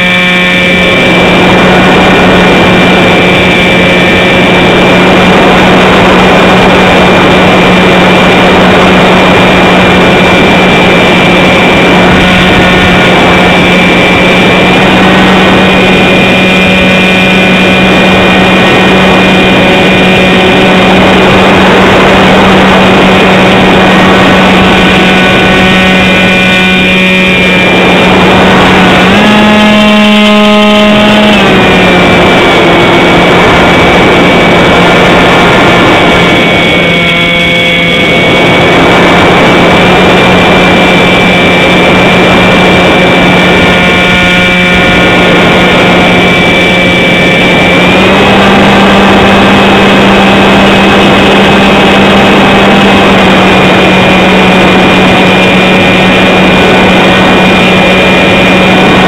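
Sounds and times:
model airplane motor and propeller: 0.0 - 59.0
rush of air: 0.1 - 29.4.

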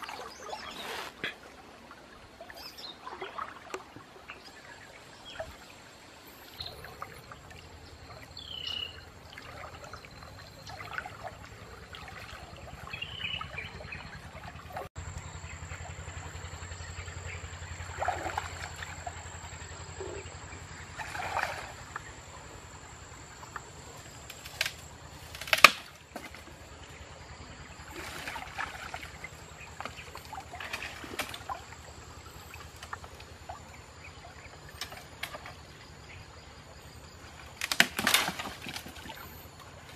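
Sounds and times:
water splashing from wading: 0.0 - 39.9
sharp crack: 24.3 - 26.4, 37.6 - 38.8.

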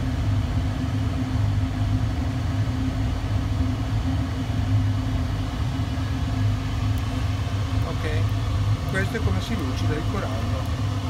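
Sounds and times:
polishing motor humming: 4.6 - 11.0.

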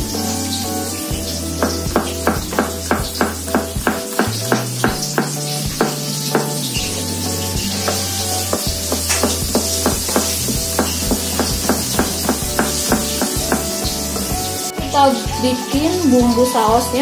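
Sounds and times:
background music: 0.0 - 17.0
knife chopping on plastic board: 7.9 - 13.7.

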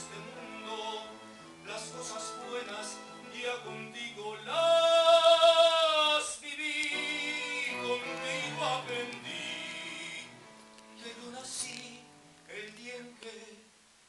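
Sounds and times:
violin cello and piano trio: 0.0 - 4.6, 7.0 - 11.3
man singing operatically: 0.0 - 10.4, 11.0 - 13.8.

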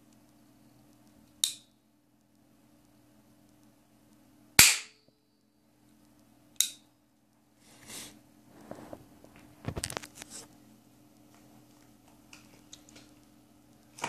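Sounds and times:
toy pistol cracking: 4.6 - 5.0.

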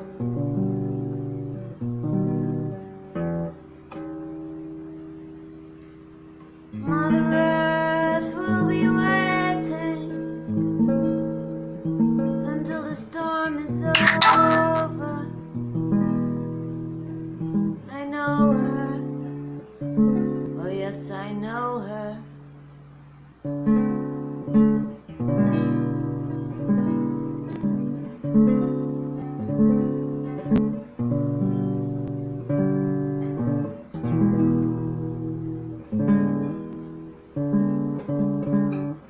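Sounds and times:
acoustic guitar strumming: 0.0 - 39.0
woman singing: 6.8 - 10.2, 12.4 - 15.4, 17.8 - 19.2, 20.6 - 22.3.

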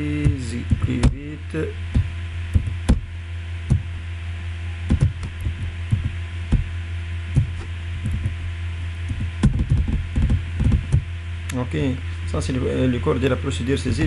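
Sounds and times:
steady low hum: 0.0 - 14.0
keyboard keys pressed: 9.1 - 11.0.

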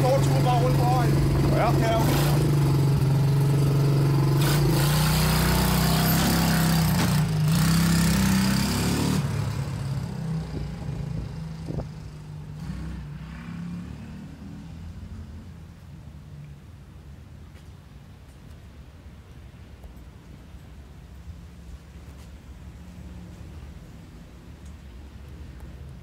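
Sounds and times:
quad bike engine running: 0.0 - 13.4.

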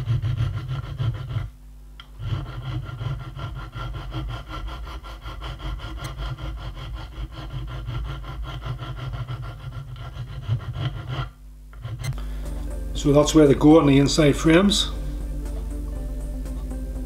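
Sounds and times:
hand files scraping steel: 0.0 - 12.6.

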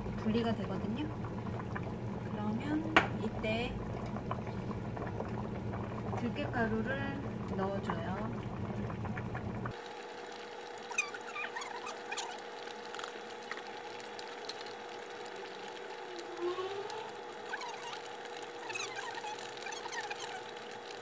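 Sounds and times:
stew bubbling: 0.0 - 21.0
ladle stirring: 10.8 - 14.8.

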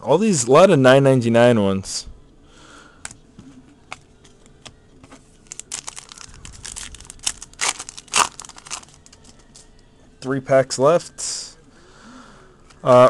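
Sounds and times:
foil wrapper tearing and crinkling: 5.4 - 9.3.

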